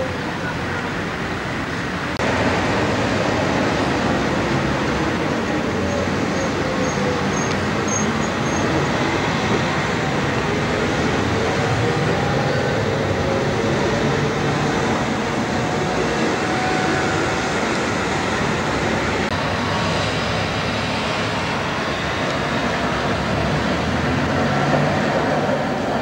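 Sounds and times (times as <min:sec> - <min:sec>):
tram and traffic rumble: 0:00.0 - 0:26.0.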